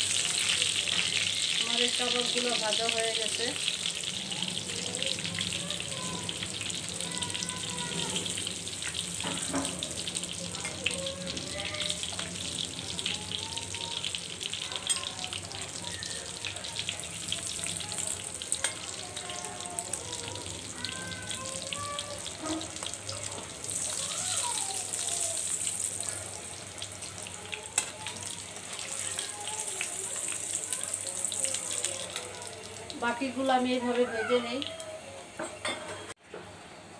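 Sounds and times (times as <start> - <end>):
food sizzling in oil: 0.0 - 35.8.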